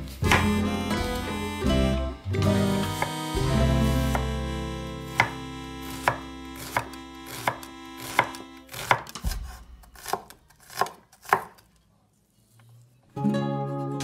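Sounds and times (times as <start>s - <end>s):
soft background music: 0.0s - 6.9s
knife chopping on wooden board: 0.2s - 0.6s, 4.1s - 4.4s, 5.1s - 11.7s.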